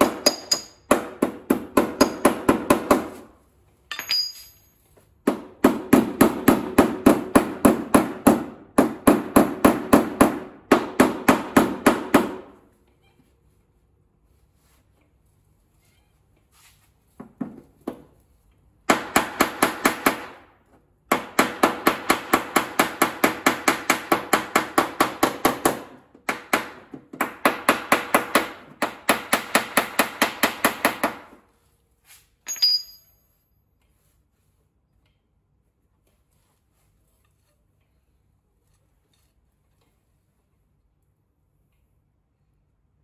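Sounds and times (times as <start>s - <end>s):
high metallic ring: 3.9s - 4.9s, 32.5s - 33.6s.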